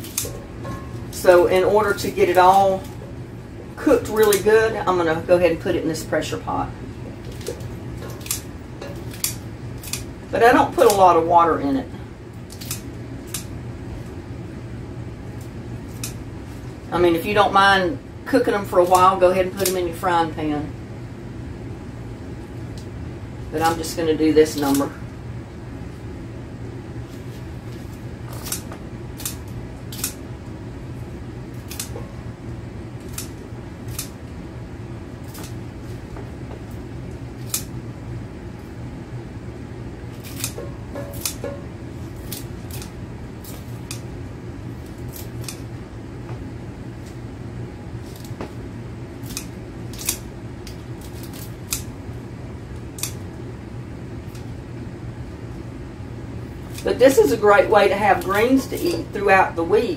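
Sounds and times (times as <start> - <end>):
scissors snipping leaves: 0.0 - 0.4, 4.0 - 4.5, 7.3 - 11.0, 12.5 - 13.5, 15.4 - 16.2, 18.8 - 19.8, 24.6 - 24.9, 28.3 - 30.2, 31.6 - 32.0, 33.0 - 34.2, 35.2 - 35.6, 37.4 - 37.7, 40.1 - 41.5, 42.1 - 44.1, 44.8 - 45.7, 48.0 - 48.5, 49.2 - 51.9, 53.0 - 53.2
steady low hum: 0.0 - 59.9.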